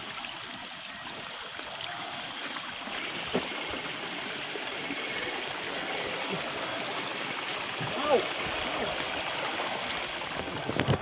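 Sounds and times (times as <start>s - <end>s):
water running in a stream: 0.0s - 11.0s.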